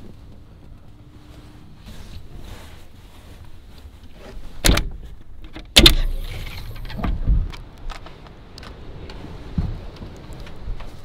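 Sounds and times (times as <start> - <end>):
knocks and thuds of climbing out: 4.2 - 8.0, 9.5 - 11.0
hatch latches clunking: 4.6 - 7.2.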